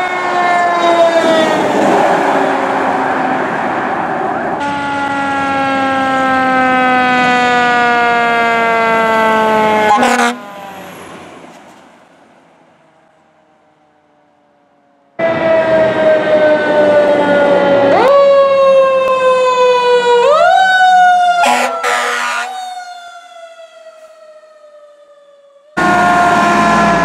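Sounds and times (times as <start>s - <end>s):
fire truck siren wailing: 0.0s - 27.0s
short horn blasts: 9.9s - 10.4s, 21.4s - 22.5s.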